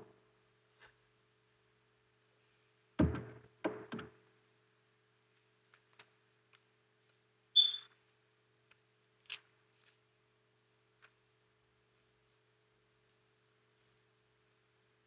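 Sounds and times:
dull knocks: 3.0s - 4.1s.

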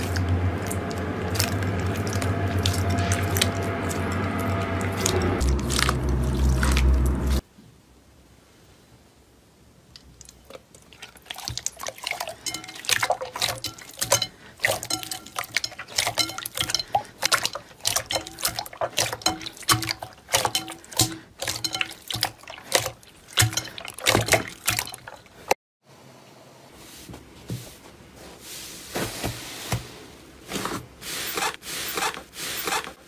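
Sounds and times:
slime squishing: 0.0s - 7.4s, 10.0s - 25.5s.

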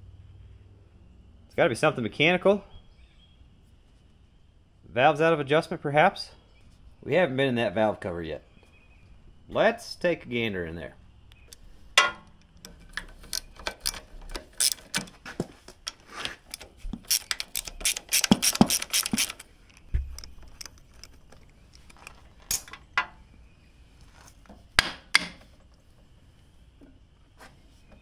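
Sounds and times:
ratchet wrench clicking: 12.7s - 15.0s, 16.5s - 21.1s.

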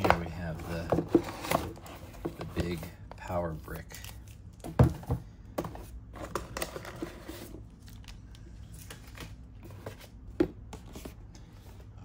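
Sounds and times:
cardboard rustling and scraping: 0.0s - 2.9s, 4.8s - 7.7s, 8.7s - 11.9s.

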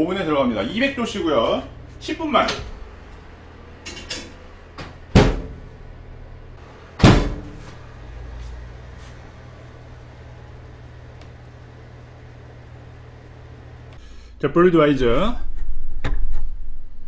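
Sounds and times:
steady low hum: 0.0s - 17.0s
oven door banging shut: 3.9s - 5.7s, 7.0s - 7.8s.

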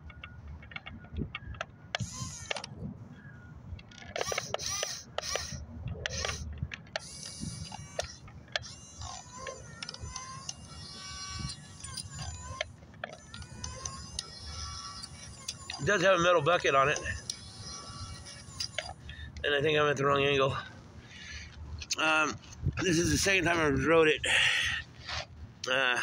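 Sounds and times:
small electric motors whining: 0.0s - 26.0s
clicks and scratches: 3.7s - 20.0s.

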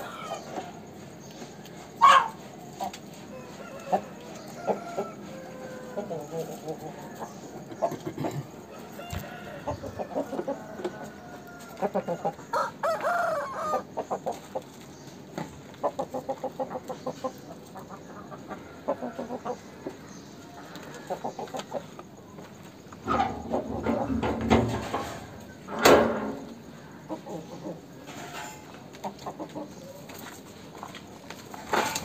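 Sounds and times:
rooster crowing: 0.0s - 0.6s, 3.3s - 7.3s, 8.6s - 13.9s
rooster clucking: 1.8s - 14.8s, 22.9s - 30.0s.

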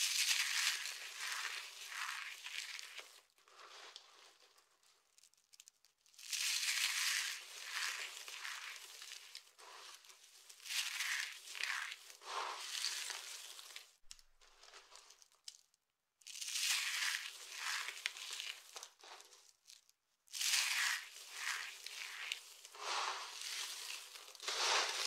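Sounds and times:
dry soap crunching: 0.0s - 25.0s.

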